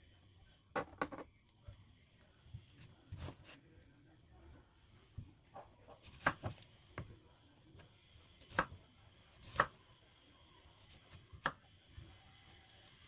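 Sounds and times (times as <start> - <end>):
knife chopping on cutting board: 5.9 - 7.1.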